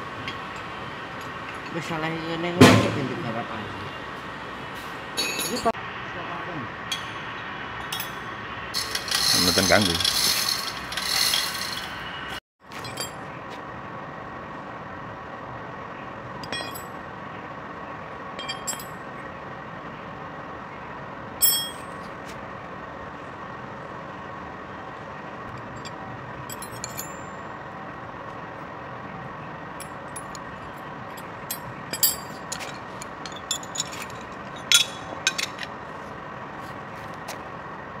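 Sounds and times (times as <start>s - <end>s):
metal tools clinking on concrete: 5.2s - 5.8s, 6.9s - 12.0s, 12.7s - 13.3s, 16.4s - 17.0s, 18.4s - 19.1s, 21.4s - 22.1s, 25.6s - 27.4s, 29.8s - 35.7s.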